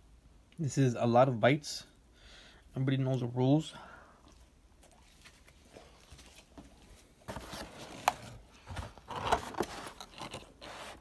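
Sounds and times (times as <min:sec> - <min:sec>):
cardboard box rustling and scraping: 0:07.2 - 0:11.0.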